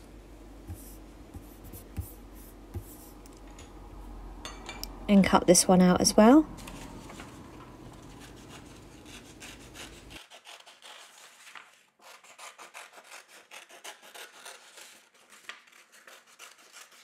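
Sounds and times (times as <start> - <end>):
low background hum: 0.0 - 10.2.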